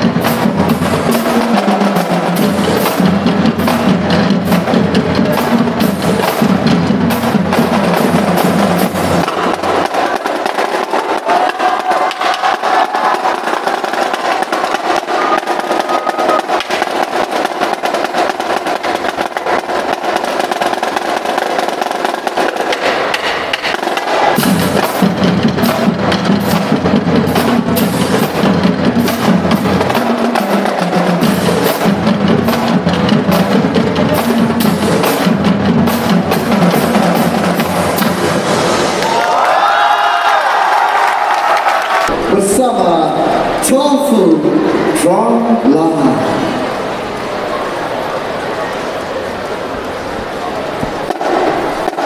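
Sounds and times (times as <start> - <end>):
pitched bass drums: 0.0 - 11.8
snare and tenor drums: 0.0 - 38.9, 50.8 - 52.0.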